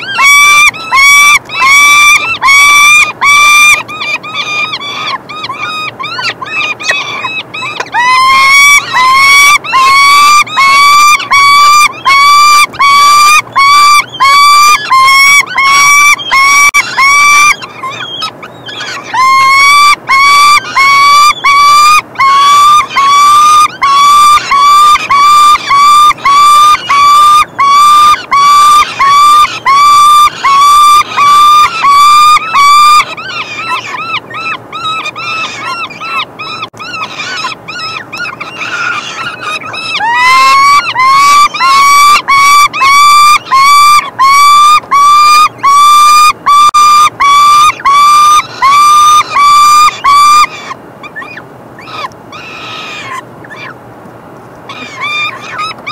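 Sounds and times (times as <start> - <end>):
falcon chicks begging calls: 0.0 - 53.8, 54.7 - 55.9.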